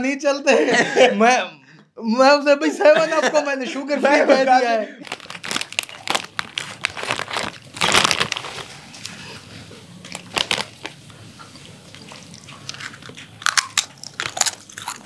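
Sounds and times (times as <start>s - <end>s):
plastic snack packets crinkling: 5.0s - 15.0s.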